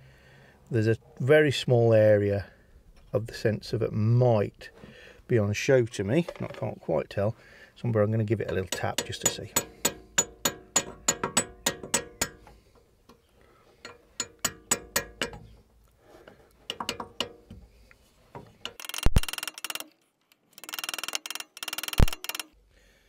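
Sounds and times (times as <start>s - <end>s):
metallic taps on chisel: 8.4s - 12.4s, 13.8s - 15.4s, 16.7s - 17.5s.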